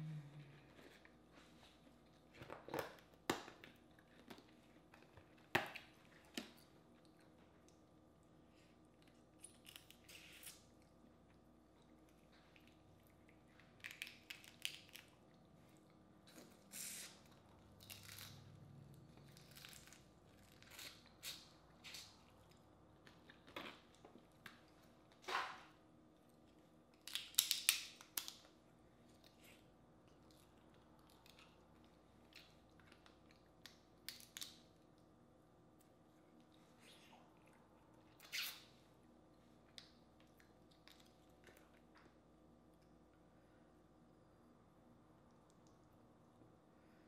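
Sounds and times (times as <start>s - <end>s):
shells cracking and crunching: 13.8s - 15.1s, 27.0s - 28.4s.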